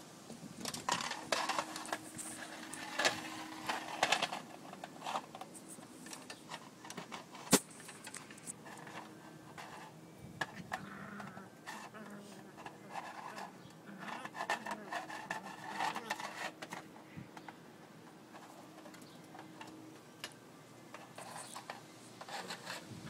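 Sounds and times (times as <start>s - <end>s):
plastic being played with: 0.6s - 17.6s.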